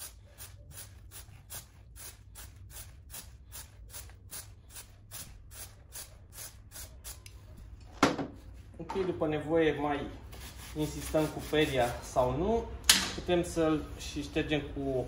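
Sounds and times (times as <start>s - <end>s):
aerosol can spraying in hissing bursts: 0.0s - 7.3s.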